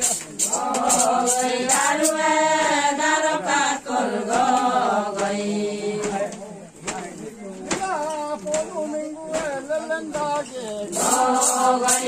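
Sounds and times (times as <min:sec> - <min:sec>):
group chanting in unison: 0:00.4 - 0:07.8, 0:10.9 - 0:12.0.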